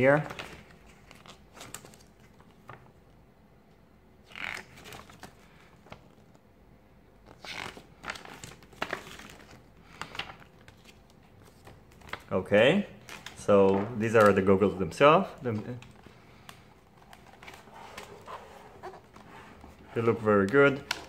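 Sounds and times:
paper pages rustling: 0:00.1 - 0:03.0, 0:04.3 - 0:06.4, 0:07.3 - 0:12.3, 0:15.5 - 0:21.0.

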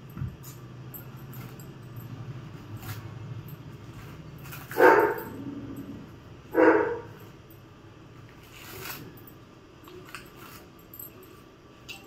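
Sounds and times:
dog barking: 0:04.7 - 0:05.4, 0:06.5 - 0:07.2.

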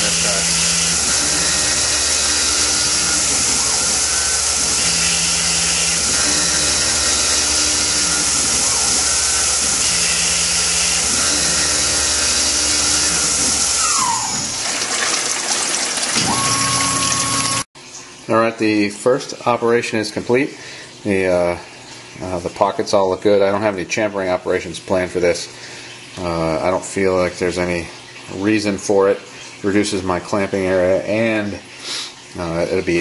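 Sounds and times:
spindle winding down whine: 0:00.0 - 0:14.6, 0:16.2 - 0:17.6
coolant spray hissing: 0:00.0 - 0:14.7
milling machine spindle hum: 0:00.0 - 0:14.8, 0:16.2 - 0:17.6.

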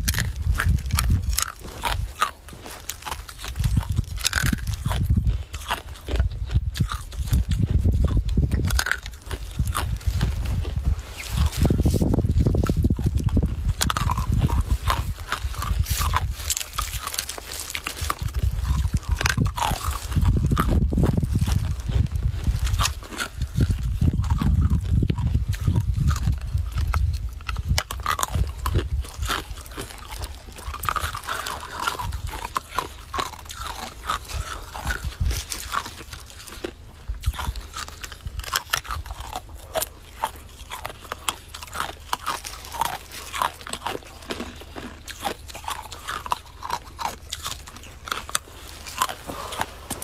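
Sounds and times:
ice crunching between teeth: 0:00.0 - 0:50.0
low rumble: 0:06.2 - 0:33.6.

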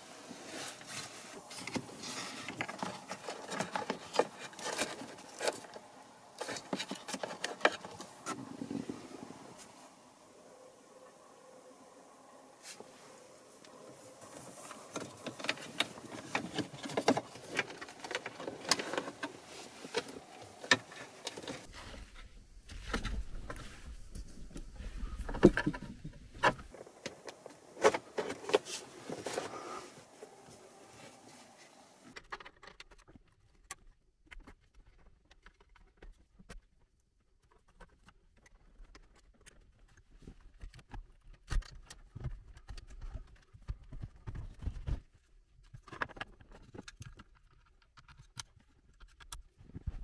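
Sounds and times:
wiring harness rustling: 0:00.3 - 0:09.8, 0:12.6 - 0:33.7.

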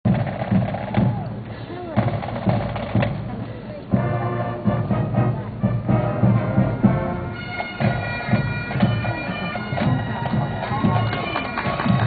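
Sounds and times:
marching drums beating: 0:00.1 - 0:12.0
wind instruments sustained notes: 0:03.2 - 0:12.0.

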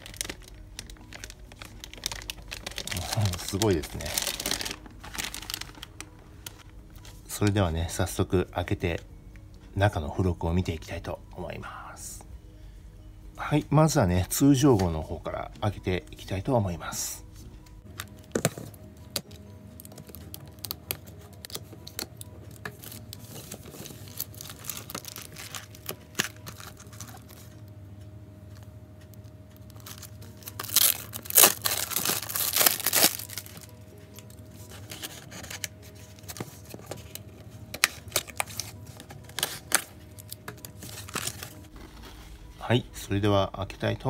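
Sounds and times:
packaging being torn open: 0:00.0 - 0:06.6, 0:19.2 - 0:27.4, 0:29.7 - 0:41.7
packaging rustling and clicking: 0:00.0 - 0:07.1, 0:17.9 - 0:27.5, 0:29.6 - 0:42.2.

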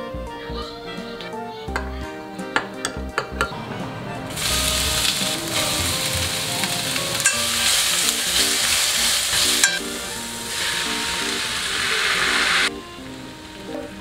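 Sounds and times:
vegetables sizzling in hot oil: 0:04.4 - 0:14.0.

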